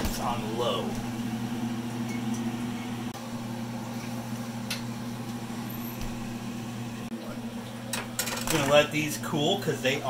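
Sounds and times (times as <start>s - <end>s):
kitchen appliance humming: 0.0s - 10.0s.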